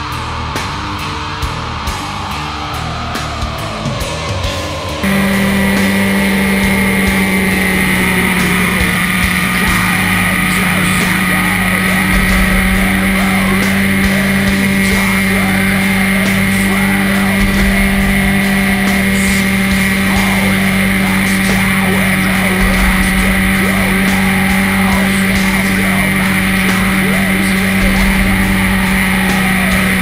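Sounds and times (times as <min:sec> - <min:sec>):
motorcycle engine cruising: 0:00.0 - 0:30.0
rock music: 0:00.0 - 0:30.0.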